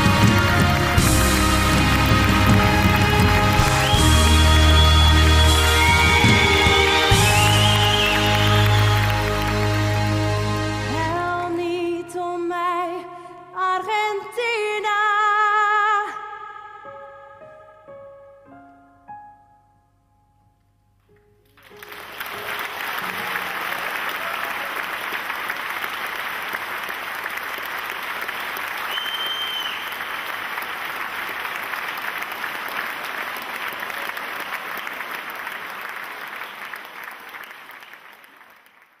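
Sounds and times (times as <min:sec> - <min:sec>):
audience applauding: 0:00.0 - 0:11.0, 0:21.5 - 0:39.0
soft orchestra notes: 0:00.0 - 0:12.4
whistle: 0:03.1 - 0:09.5, 0:28.8 - 0:30.0.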